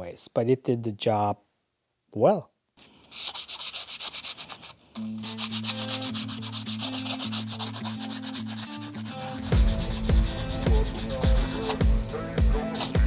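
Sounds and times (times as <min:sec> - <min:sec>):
sandpaper scratching on metal: 0:03.0 - 0:13.0
background music with low beat: 0:08.6 - 0:13.0.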